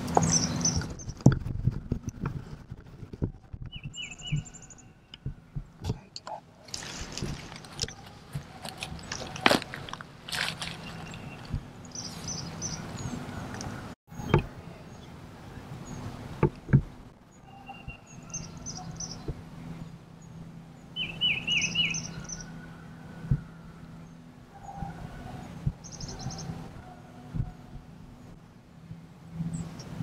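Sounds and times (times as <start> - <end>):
songbirds chirping and trilling: 0.0 - 1.3, 3.5 - 30.0.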